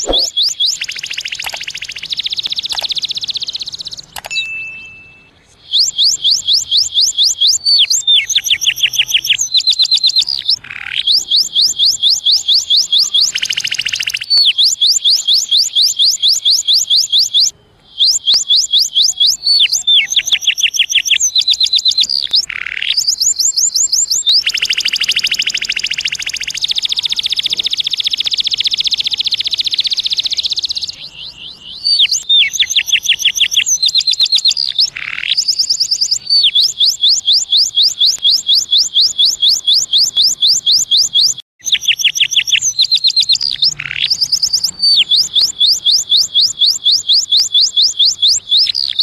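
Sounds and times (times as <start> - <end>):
canary singing trills: 0.0 - 49.0.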